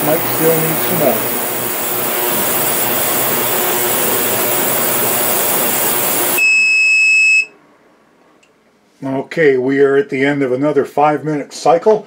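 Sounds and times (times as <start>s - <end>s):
ultrasonic cleaner hissing: 0.0s - 6.4s
high-pitched beep: 6.4s - 7.5s.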